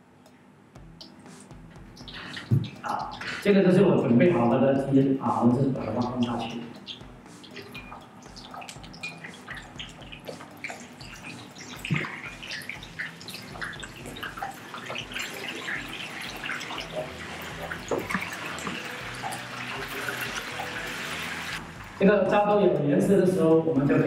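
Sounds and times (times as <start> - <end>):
wings sizzling in hot oil: 6.1 - 22.0.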